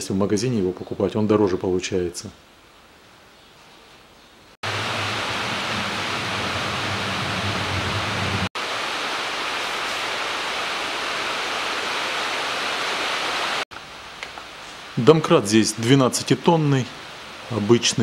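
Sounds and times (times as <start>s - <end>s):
low hum: 4.6s - 8.5s
loud steady hiss: 4.6s - 18.0s.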